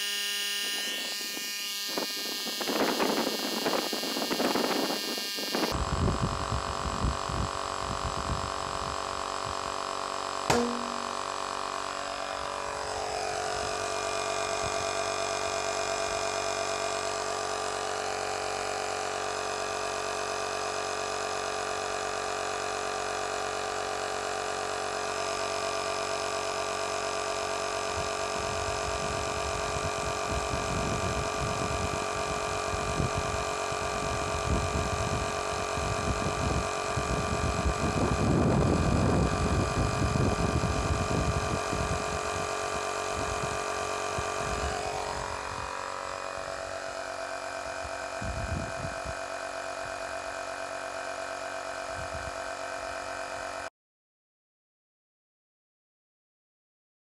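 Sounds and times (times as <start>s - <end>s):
electric air compressor running: 0.0s - 53.7s
sharp snap: 10.5s - 11.2s.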